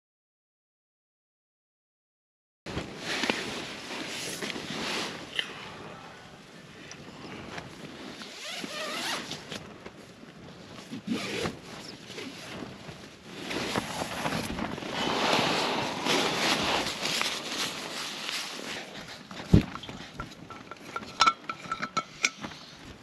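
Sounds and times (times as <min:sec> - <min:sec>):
nylon fabric rustling: 0:02.7 - 0:05.4, 0:07.3 - 0:23.0.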